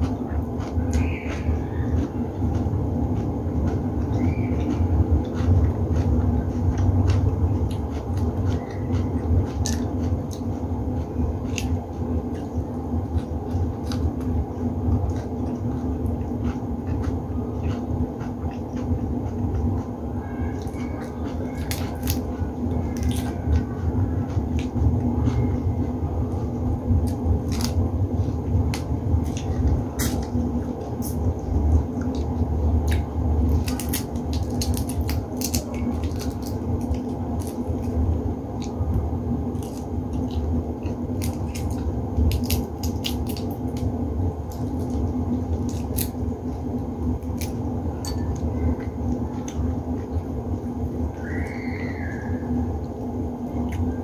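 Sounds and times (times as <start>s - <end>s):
chewing: 0.0s - 50.3s, 52.9s - 54.0s
steady low hum: 0.0s - 54.0s
shrimp shells cracking: 32.9s - 37.8s, 39.6s - 43.9s.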